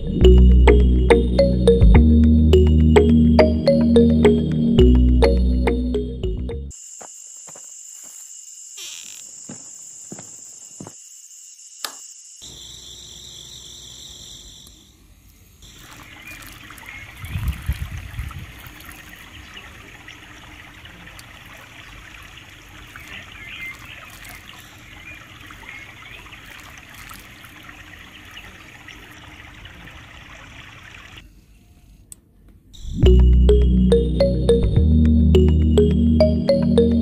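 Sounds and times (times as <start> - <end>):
water pouring onto soil: 15.6 - 31.1.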